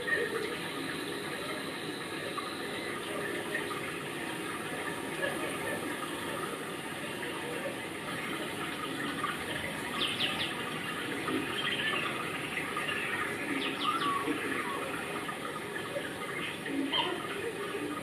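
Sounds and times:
running water: 0:00.0 - 0:18.0
bird chirping: 0:09.8 - 0:10.6, 0:11.5 - 0:14.8.

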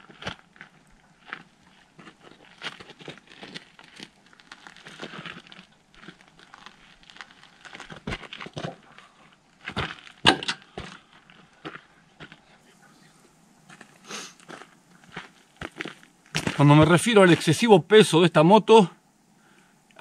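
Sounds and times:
bags rustling and crinkling: 0:00.0 - 0:11.6.

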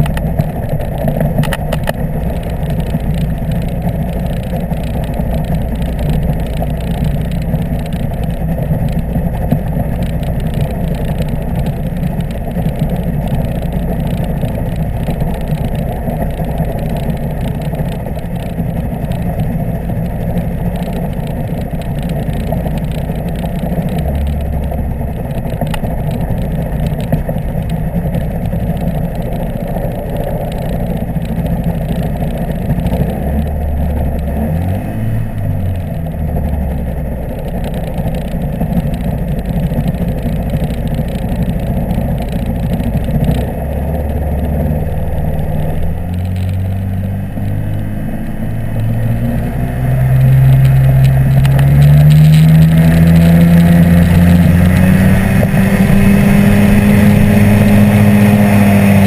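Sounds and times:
microlight engine and propeller: 0:00.0 - 0:59.0.

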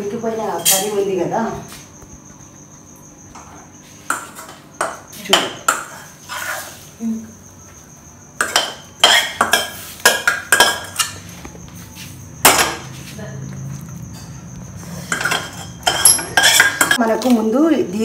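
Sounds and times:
spoon scraping steel bowl: 0:05.7 - 0:06.9, 0:08.4 - 0:11.2, 0:14.2 - 0:17.0.

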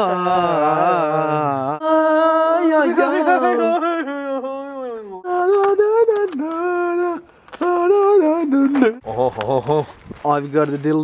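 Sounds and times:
men singing long notes: 0:00.0 - 0:09.0.

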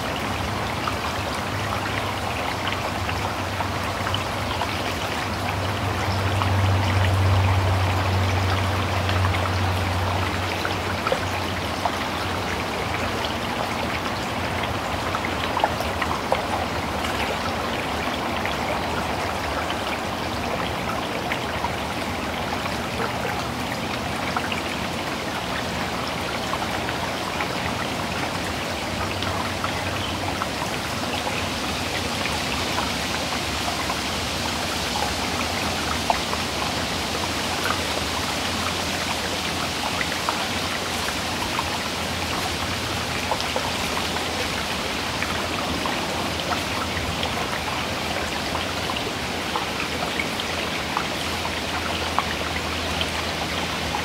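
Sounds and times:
creek running over rocks: 0:00.0 - 0:54.0.

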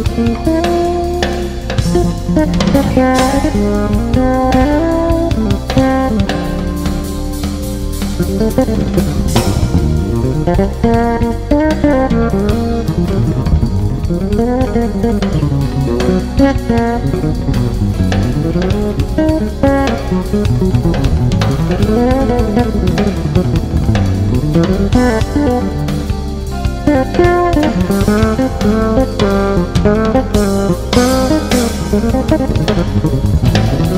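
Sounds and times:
drum kit: 0:00.0 - 0:33.9
fretless bass solo: 0:00.0 - 0:33.9.

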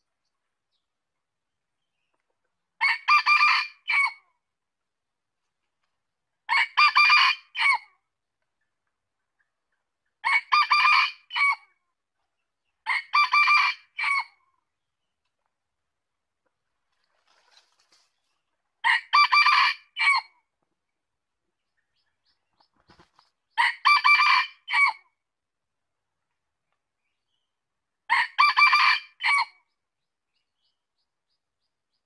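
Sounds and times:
rooster crowing: 0:23.6 - 0:25.0, 0:28.1 - 0:29.5.

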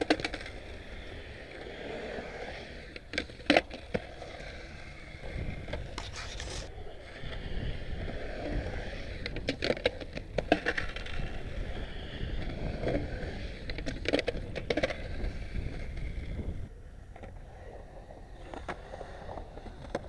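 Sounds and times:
skateboard wheels rolling on concrete: 0:00.0 - 0:20.0.

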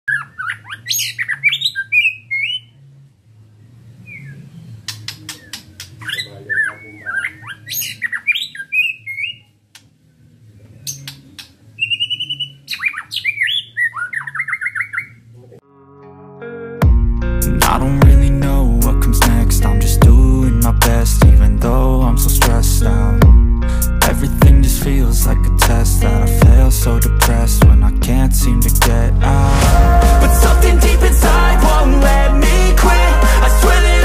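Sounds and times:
songbird whistles and trills: 0:05.1 - 0:09.5, 0:10.9 - 0:15.2.

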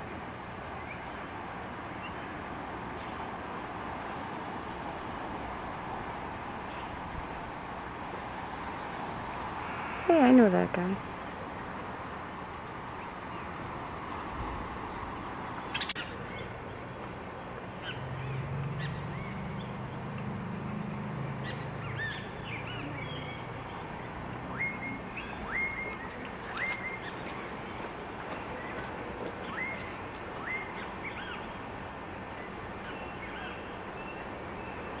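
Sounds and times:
outdoor background noise: 0:00.0 - 0:35.0
birds chirping: 0:15.6 - 0:20.2, 0:21.3 - 0:35.0.

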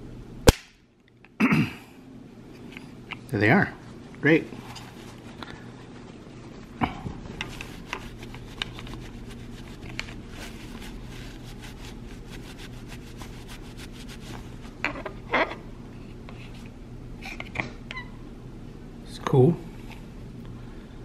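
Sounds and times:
rustling: 0:03.8 - 0:14.8.

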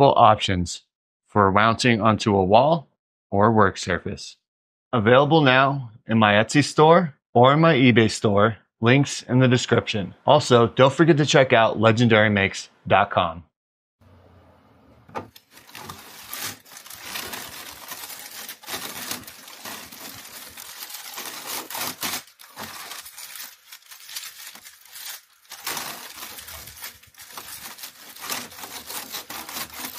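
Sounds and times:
paper wrap crinkling and rustling: 0:15.3 - 0:29.9.

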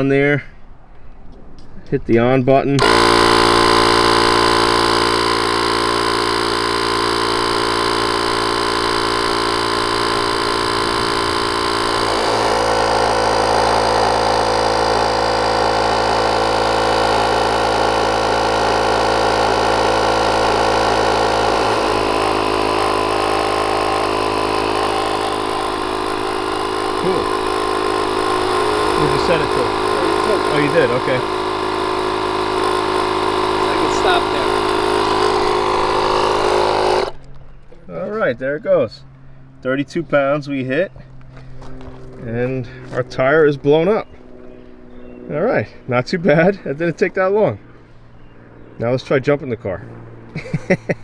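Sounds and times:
air compressor running: 0:02.8 - 0:37.4, 0:41.0 - 0:46.8.

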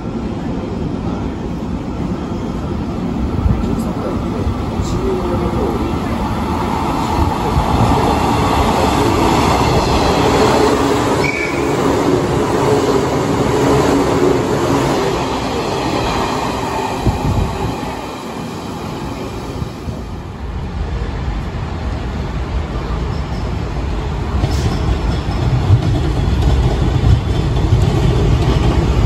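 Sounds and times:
train wheels rumbling on rail: 0:00.0 - 0:29.0
train brake squeal: 0:11.2 - 0:11.8.

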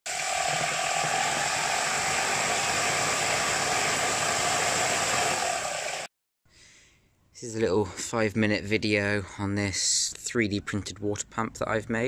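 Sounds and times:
motor whine: 0:00.1 - 0:06.1
water rushing and splashing: 0:00.1 - 0:06.1.

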